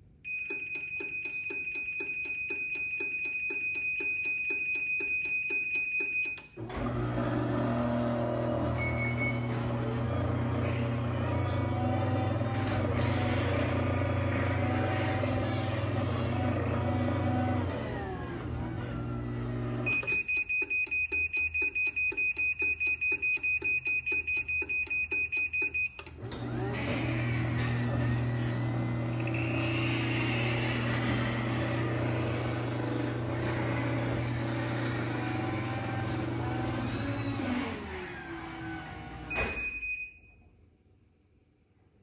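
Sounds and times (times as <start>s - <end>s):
garage door opener motor humming: 6.5s - 20.3s, 26.0s - 39.7s.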